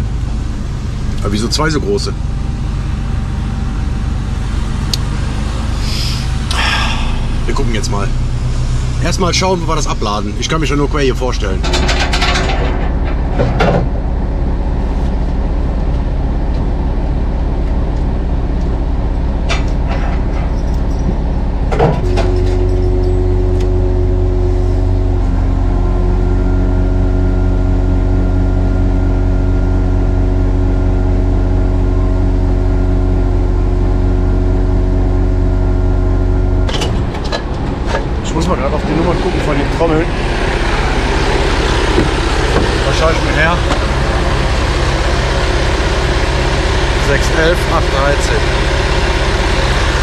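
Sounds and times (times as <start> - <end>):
heavy machinery rumble: 0.0 - 50.0
low hum with held tones: 0.0 - 50.0
knocks: 41.9 - 42.8.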